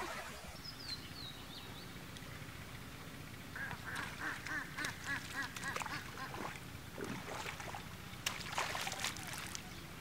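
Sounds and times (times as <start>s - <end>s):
bird calls: 0.1s - 2.0s
water splashing and dripping: 4.0s - 9.7s.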